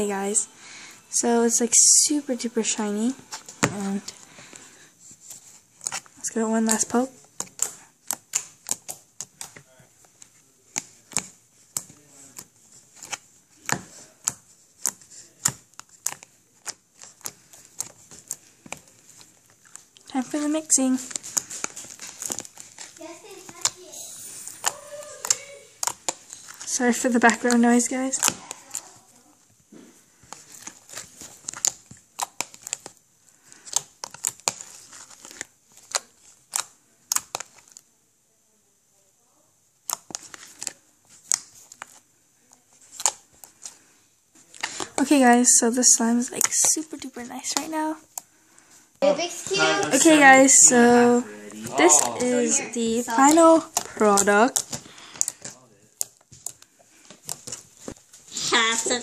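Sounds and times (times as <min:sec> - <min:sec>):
slime squished by hand: 0:05.2 - 0:09.6, 0:10.7 - 0:29.3, 0:30.2 - 0:37.9
sticky clicks and pops: 0:05.8 - 0:09.6, 0:24.6 - 0:29.0, 0:30.3 - 0:37.8, 0:39.8 - 0:42.0, 0:46.0 - 0:48.3, 0:52.8 - 0:58.0.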